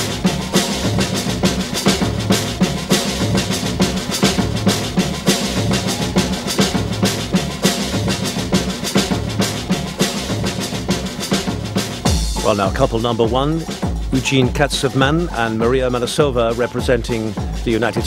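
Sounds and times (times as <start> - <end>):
drum and percussion beat: 0.0 - 18.0
samba dance music: 0.0 - 18.0.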